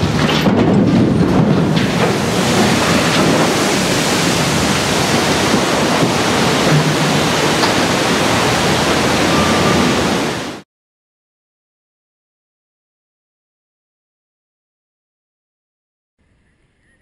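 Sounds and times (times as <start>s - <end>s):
water rushing and churning: 0.0s - 10.6s.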